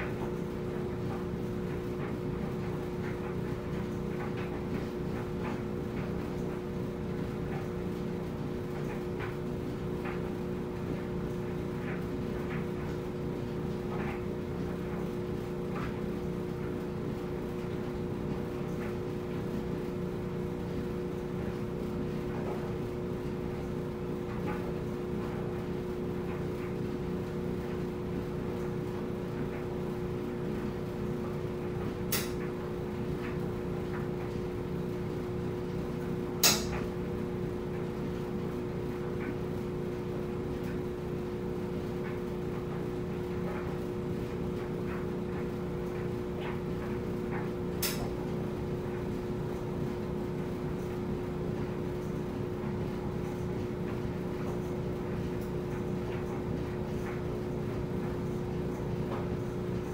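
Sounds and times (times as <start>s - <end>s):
clothes dryer humming and rumbling: 0.0s - 59.9s
sharp click: 32.1s - 32.4s, 36.4s - 36.9s, 47.8s - 48.1s.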